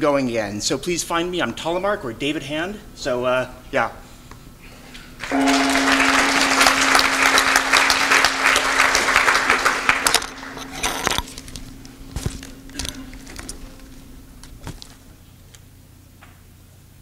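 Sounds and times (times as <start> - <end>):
audience applauding: 5.2 - 11.2
steady ringing tone: 5.3 - 11.9.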